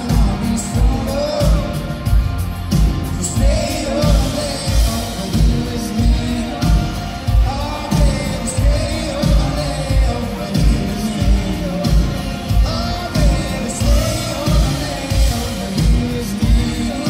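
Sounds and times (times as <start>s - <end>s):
acoustic guitar and band: 0.0s - 17.0s
man singing: 0.0s - 17.0s.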